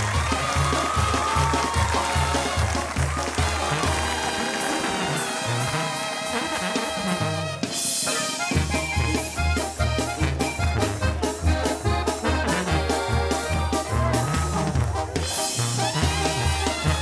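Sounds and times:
brass band with accordion: 0:00.0 - 0:17.0.

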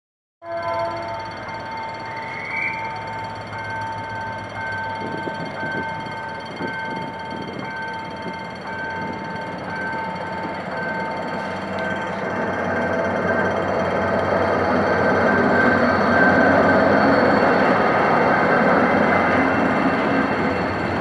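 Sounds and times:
diesel locomotive and train rumbling: 0:00.4 - 0:21.0.

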